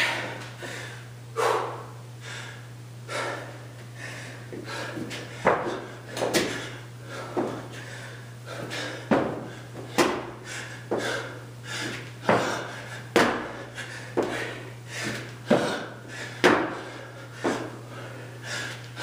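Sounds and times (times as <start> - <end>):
thuds on concrete floor: 9.1 - 10.3, 11.8 - 13.6, 15.0 - 15.8, 16.4 - 16.8.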